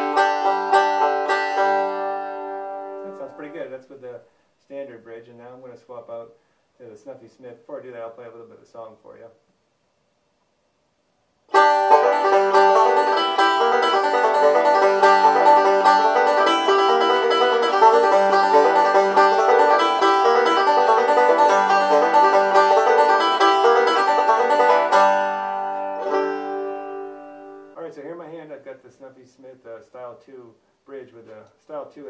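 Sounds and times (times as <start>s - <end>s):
banjo picking: 0.0s - 4.0s, 11.5s - 28.6s.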